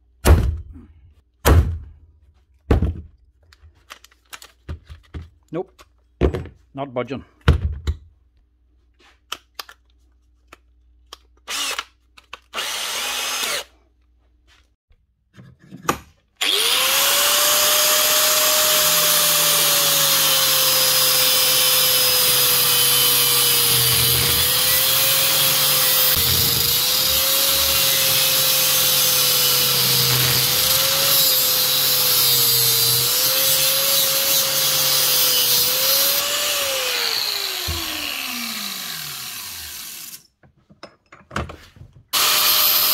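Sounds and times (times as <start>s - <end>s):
angle grinder cutting metal: 12.6s - 13.7s, 16.4s - 40.2s, 42.2s - 42.9s.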